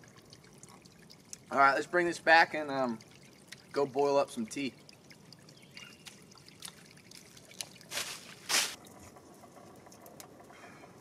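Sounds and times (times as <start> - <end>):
trickling spring water: 0.0 - 10.6
splashing squelching steps: 4.8 - 8.8.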